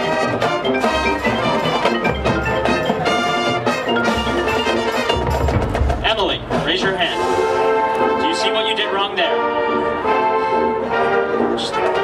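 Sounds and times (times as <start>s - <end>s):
drums: 0.0s - 8.6s
marching band playing: 0.0s - 12.0s
mallet percussion: 0.5s - 7.8s.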